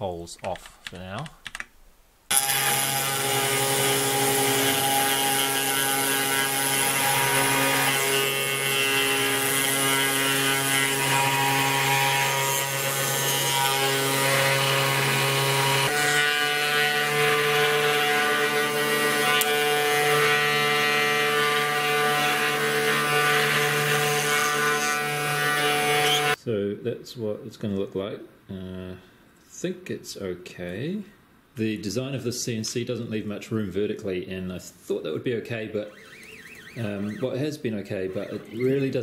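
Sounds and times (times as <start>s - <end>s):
cnc router whining tones: 2.3s - 26.4s, 35.8s - 37.5s
router cutting plywood: 2.3s - 26.4s, 35.8s - 39.0s.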